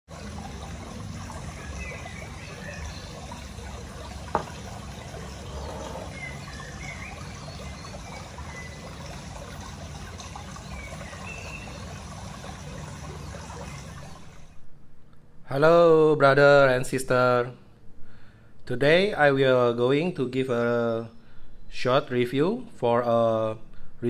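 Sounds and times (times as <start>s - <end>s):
water trickling: 0.1s - 14.6s.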